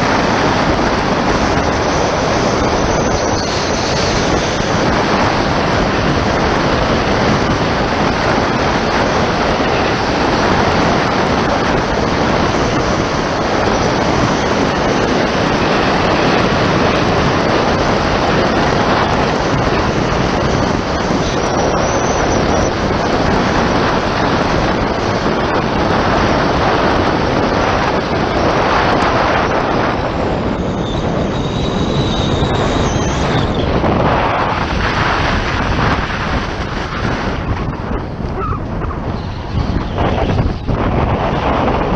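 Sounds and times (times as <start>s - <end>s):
wind rushing over microphone: 0.0s - 41.9s.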